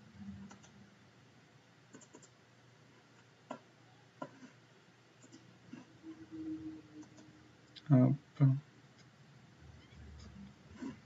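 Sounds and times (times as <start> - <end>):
computer mouse clicks: 0.4 - 0.8, 1.9 - 2.4, 5.2 - 5.9, 7.0 - 7.8.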